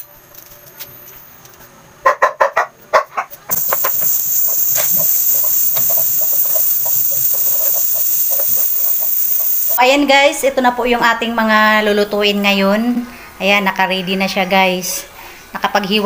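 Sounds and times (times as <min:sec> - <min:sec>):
steady high hiss: 0:03.5 - 0:09.8.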